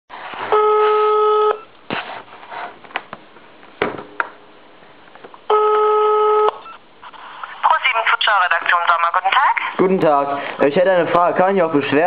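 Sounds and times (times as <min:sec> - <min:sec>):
telephone ringback beep: 0:00.5 - 0:01.7, 0:05.5 - 0:06.8.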